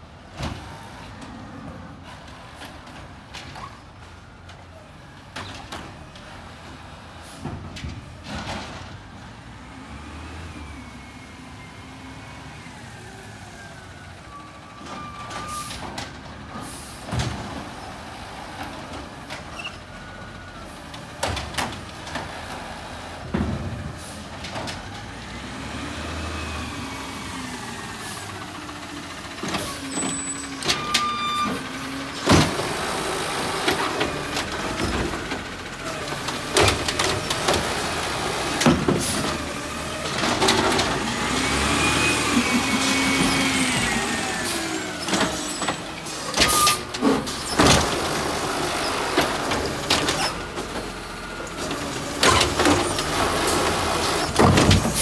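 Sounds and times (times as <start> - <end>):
garbage truck engine: 0.0 - 55.0
air brakes hissing: 16.5 - 17.1.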